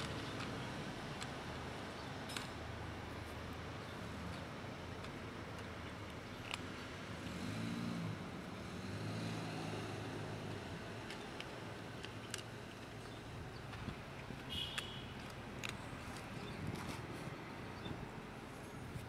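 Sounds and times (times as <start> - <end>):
cat crunching dry kibble: 0.0 - 1.9, 2.8 - 7.6, 10.1 - 17.4
road traffic rumble: 0.0 - 19.0.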